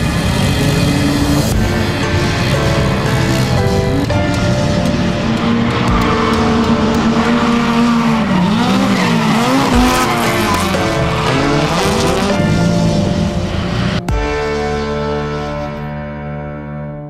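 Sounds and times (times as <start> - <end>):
tyres squealing: 0.0 - 13.9
car engine at high revs: 0.0 - 15.6
music: 0.0 - 17.0.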